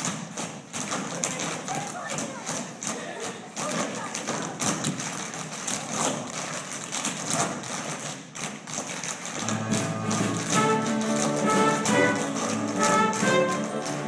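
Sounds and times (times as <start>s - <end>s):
tap shoes tapping on stage: 0.0s - 14.0s
orchestral music: 9.4s - 14.0s.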